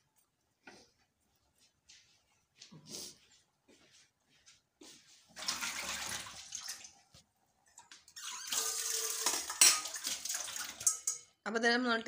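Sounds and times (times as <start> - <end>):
liquid sloshing and splashing: 5.3 - 7.2, 7.8 - 11.0
utensils clinking against dishes: 8.5 - 11.4.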